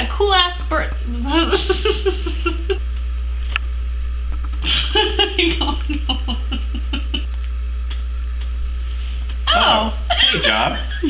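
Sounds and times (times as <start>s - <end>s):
steady low hum: 0.0s - 11.0s
woman's stifled laughter: 1.6s - 2.8s, 4.6s - 7.3s, 10.1s - 11.0s.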